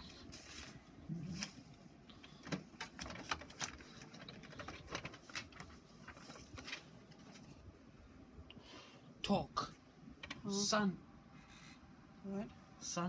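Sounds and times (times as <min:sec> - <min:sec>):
paper sheets handled: 0:00.0 - 0:01.7, 0:02.3 - 0:07.7
printer clicks and rattles: 0:02.2 - 0:05.7.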